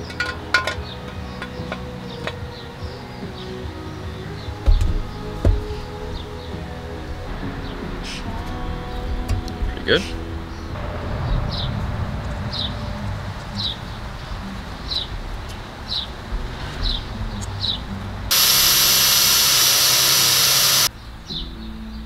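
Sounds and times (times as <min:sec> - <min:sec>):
loud steady hiss: 0:18.3 - 0:20.9.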